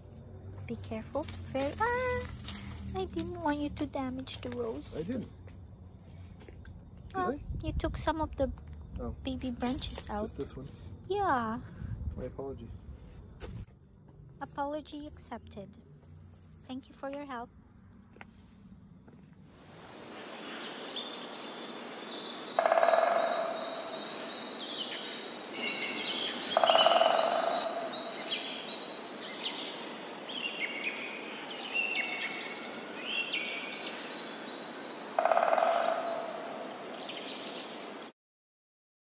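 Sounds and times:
small birds chirping: 0:00.0 - 0:05.4, 0:19.6 - 0:38.1
louder lower bird calls: 0:19.8 - 0:38.1.

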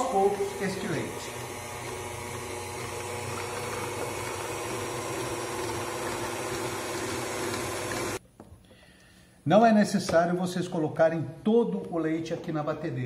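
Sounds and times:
stand mixer motor humming: 0:00.0 - 0:08.2
whisk beating cream: 0:00.0 - 0:08.2.

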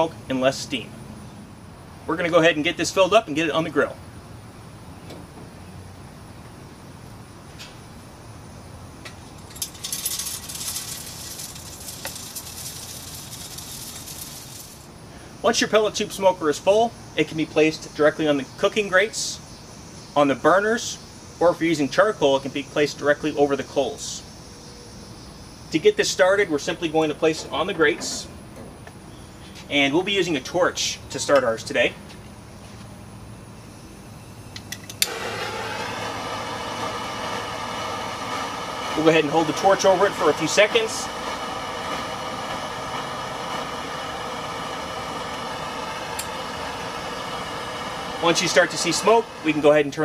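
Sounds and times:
background hiss: 0:00.0 - 0:50.0
pellets rattling into metal tube: 0:09.4 - 0:14.9.

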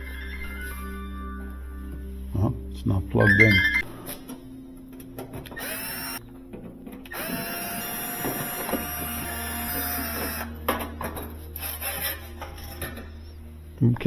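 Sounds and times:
cordless drill whining: 0:05.6 - 0:06.2, 0:07.1 - 0:10.5.

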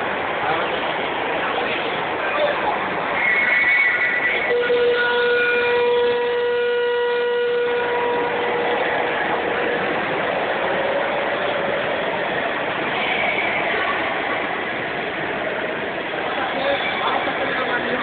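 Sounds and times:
steady background noise: 0:00.0 - 0:18.0
model locomotive horn blast: 0:04.2 - 0:09.5.

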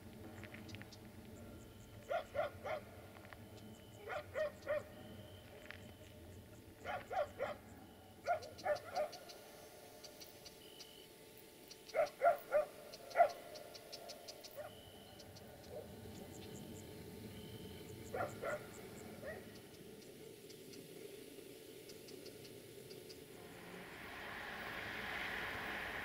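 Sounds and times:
small dog barking: 0:02.0 - 0:02.9, 0:04.0 - 0:05.0, 0:06.8 - 0:09.2, 0:11.9 - 0:13.5, 0:18.1 - 0:19.6.

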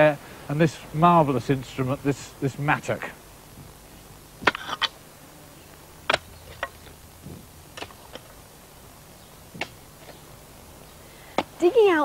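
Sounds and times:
mattock striking ground: 0:04.4 - 0:05.0, 0:05.7 - 0:10.4.

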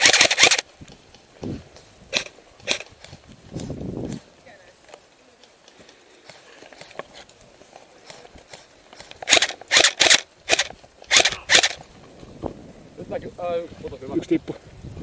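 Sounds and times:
airsoft rifle shots: 0:00.0 - 0:00.6, 0:09.0 - 0:11.8.

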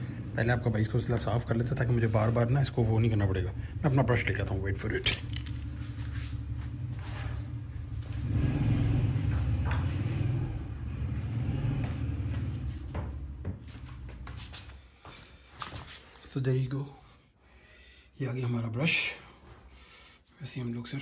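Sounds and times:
low rumble: 0:00.0 - 0:14.0.

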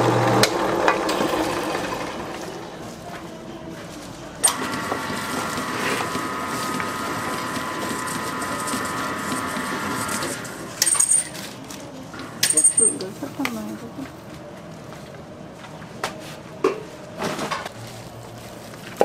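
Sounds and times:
motor whining: 0:04.4 - 0:11.5.

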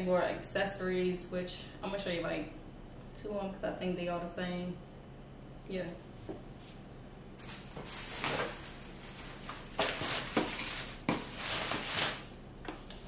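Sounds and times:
packaging rustling in cardboard box: 0:07.4 - 0:12.4.

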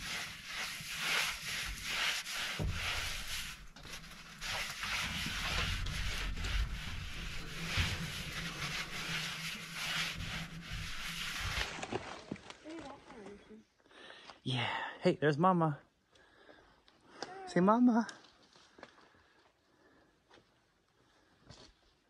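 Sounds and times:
paper towel rubbing metal pan: 0:00.0 - 0:11.8.

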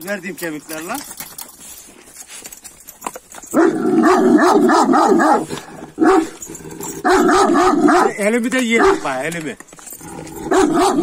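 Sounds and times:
dog barking: 0:03.5 - 0:06.4, 0:07.0 - 0:09.1, 0:10.4 - 0:11.0.

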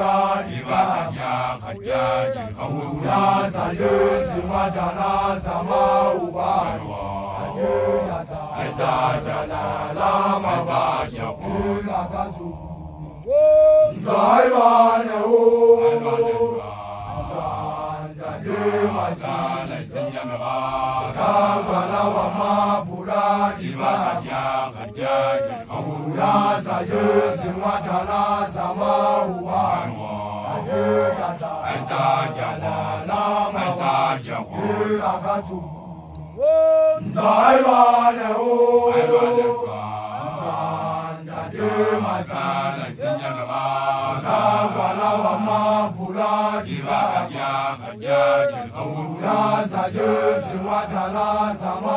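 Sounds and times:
group of men chanting: 0:00.0 - 0:51.9
loud rising call: 0:13.2 - 0:15.1, 0:36.3 - 0:39.2.

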